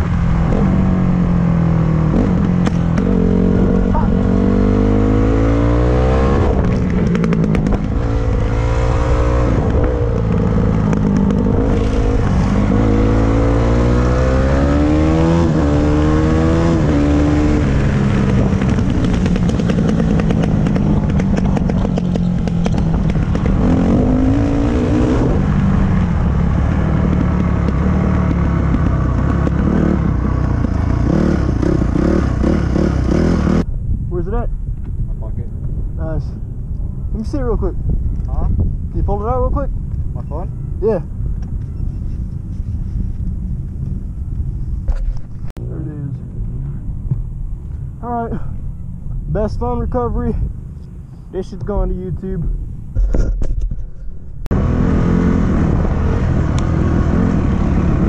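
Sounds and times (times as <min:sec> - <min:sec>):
dirt bike engine revving: 0:01.9 - 0:25.8, 0:26.8 - 0:33.6, 0:54.5 - 0:58.0.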